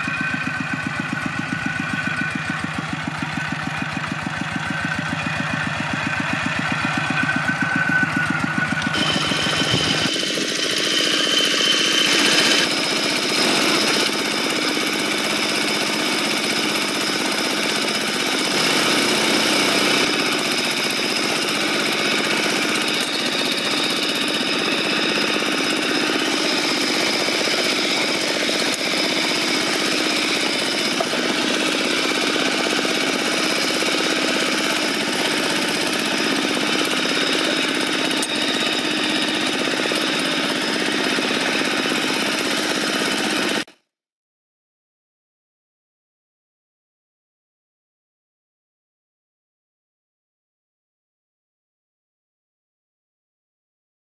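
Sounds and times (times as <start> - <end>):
diesel tractor engine running: 0.0 - 43.7.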